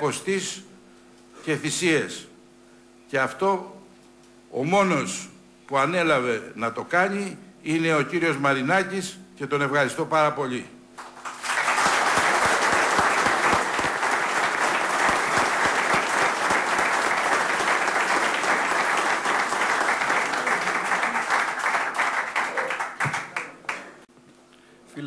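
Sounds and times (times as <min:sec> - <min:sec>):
audience applauding: 0:11.0 - 0:24.0.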